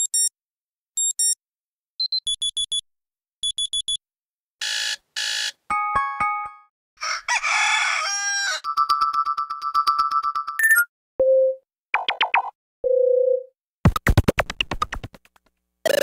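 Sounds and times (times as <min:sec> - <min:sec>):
buzzer blasts: 0:04.6 - 0:05.6
synthesized rooster crow: 0:07.0 - 0:08.7
high electronic beeps: 0:10.6 - 0:12.2.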